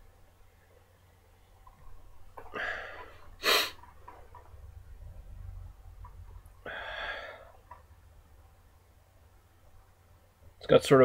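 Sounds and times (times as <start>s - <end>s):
person sniffing: 2.6s - 3.9s.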